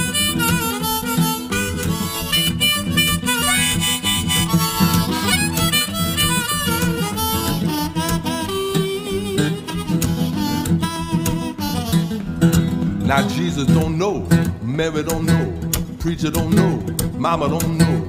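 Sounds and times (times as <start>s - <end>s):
harmonica with bending notes: 0.0s - 13.7s
guitar backing: 0.0s - 18.0s.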